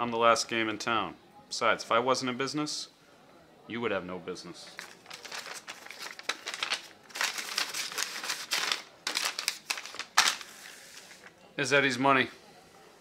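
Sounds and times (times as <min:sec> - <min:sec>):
banknotes rustling and flicking: 0:04.7 - 0:11.4.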